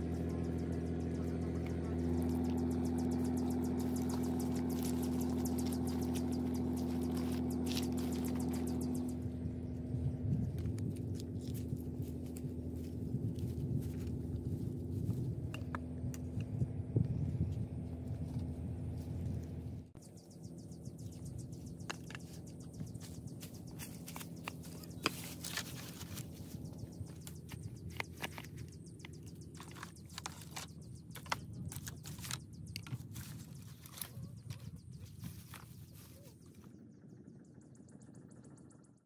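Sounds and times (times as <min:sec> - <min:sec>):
bamboo sticks clicking and knocking: 0:21.7 - 0:35.7.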